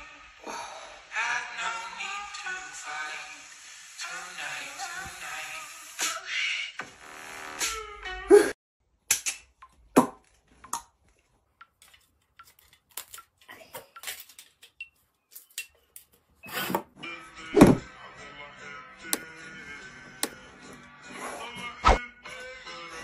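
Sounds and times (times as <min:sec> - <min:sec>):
background music: 0:17.0 - 0:23.0.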